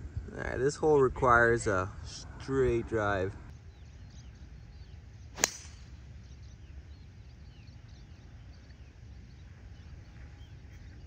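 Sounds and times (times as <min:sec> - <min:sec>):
faint bird chirps: 0:03.5 - 0:11.0
golf club swish and ball crack: 0:05.3 - 0:06.0.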